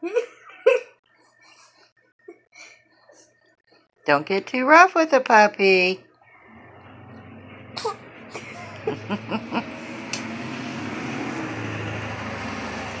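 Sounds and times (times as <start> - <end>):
vehicle engine humming: 6.3 - 13.0.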